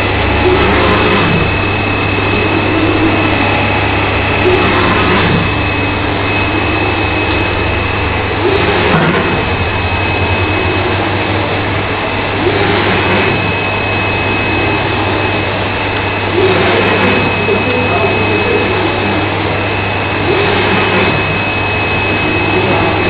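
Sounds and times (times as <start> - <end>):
low hum: 0.0 - 23.0
printer machine whir: 0.0 - 23.0
thin high whine: 0.0 - 23.0.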